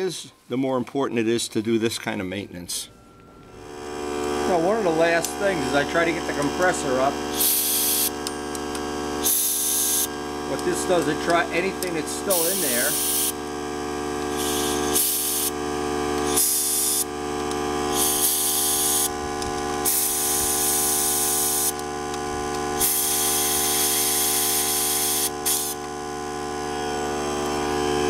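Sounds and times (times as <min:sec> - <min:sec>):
steady hum: 0:02.8 - 0:28.0
compressed air blow gun hissing: 0:07.3 - 0:08.2, 0:09.2 - 0:10.1, 0:12.2 - 0:13.4, 0:14.3 - 0:15.6, 0:16.3 - 0:17.1, 0:17.9 - 0:19.1, 0:22.8 - 0:25.8.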